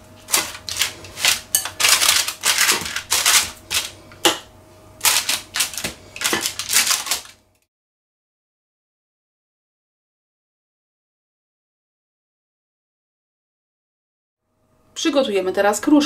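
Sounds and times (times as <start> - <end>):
paper crinkling: 0.2 - 4.0, 5.0 - 7.4.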